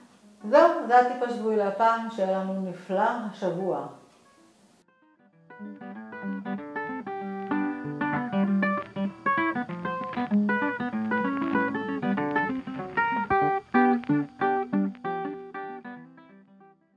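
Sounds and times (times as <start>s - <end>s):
plucked acoustic guitar: 4.2s - 16.6s.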